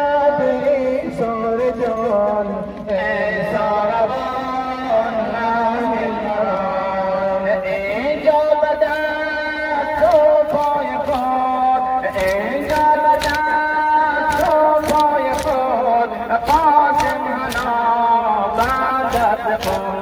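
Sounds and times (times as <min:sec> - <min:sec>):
person chanting a lament: 0:00.0 - 0:20.0
chest beating slaps: 0:12.1 - 0:15.7, 0:16.3 - 0:17.9, 0:18.5 - 0:20.0.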